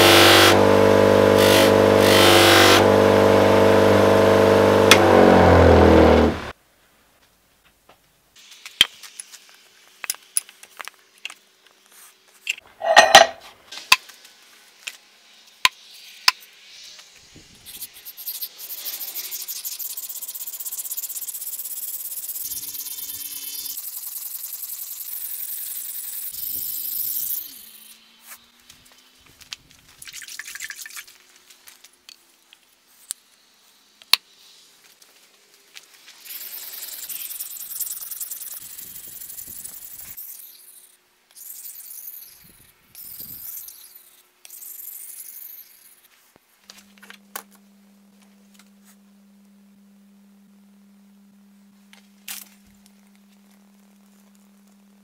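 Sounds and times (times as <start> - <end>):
blade scraping on whetstone: 12.8 - 13.4.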